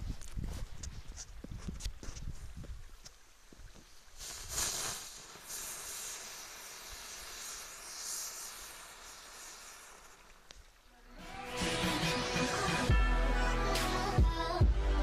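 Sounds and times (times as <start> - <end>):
firework hissing: 3.8 - 14.6.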